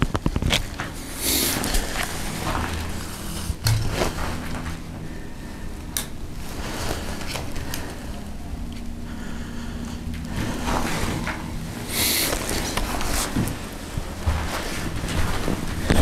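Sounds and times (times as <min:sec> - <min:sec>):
low handling rumble: 0:00.0 - 0:16.0.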